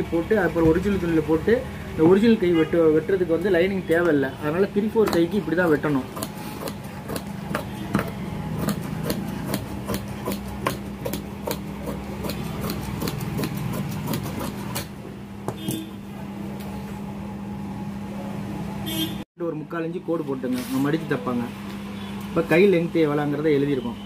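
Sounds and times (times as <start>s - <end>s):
shears snipping fabric: 5.0s - 14.9s.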